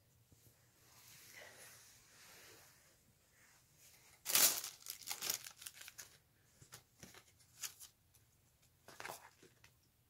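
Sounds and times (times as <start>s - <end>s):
packing paper crinkling: 4.2s - 6.2s.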